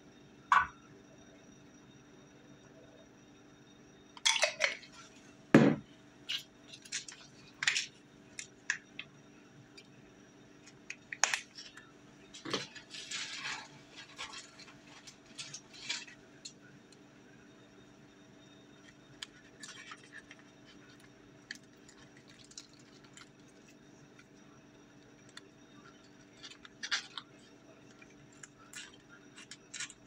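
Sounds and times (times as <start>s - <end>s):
thud: 5.6s - 5.8s
plastic packaging crinkling: 10.9s - 16.6s, 18.9s - 24.4s, 25.1s - 30.0s.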